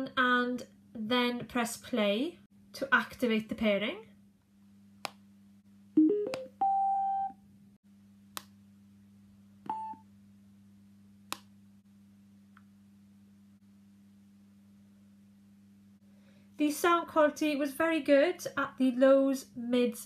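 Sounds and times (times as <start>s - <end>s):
button clicks: 6.0s - 6.8s.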